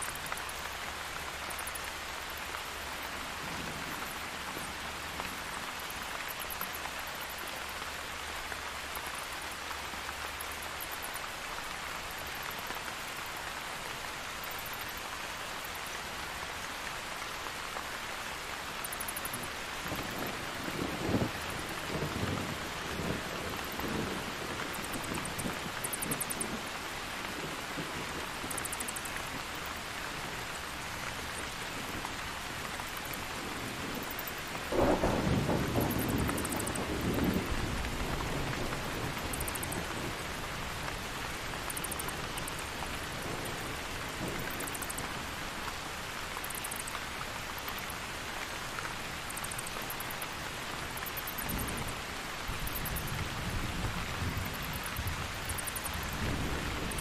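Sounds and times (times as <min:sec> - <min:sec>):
steady rain: 0:00.0 - 0:57.0
thunder clap and rumble: 0:33.6 - 0:40.2.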